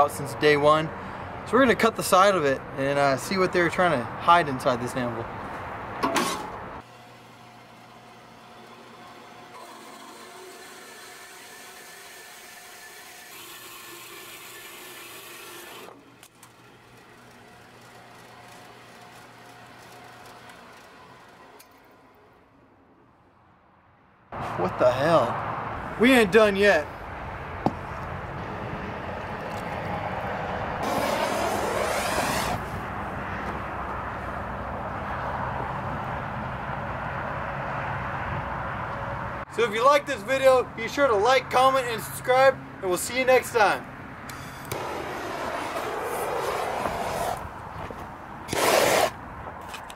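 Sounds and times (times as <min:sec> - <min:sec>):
band saw cutting metal: 0:06.1 - 0:22.0, 0:30.8 - 0:32.8, 0:48.5 - 0:49.2
fuel squirting hiss: 0:30.8 - 0:32.7, 0:48.5 - 0:49.2.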